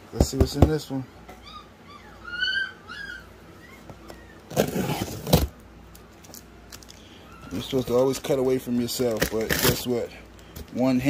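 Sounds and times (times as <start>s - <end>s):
puppy whining: 1.2s - 5.4s, 7.1s - 8.1s
knife slicing packing tape: 9.1s - 9.8s.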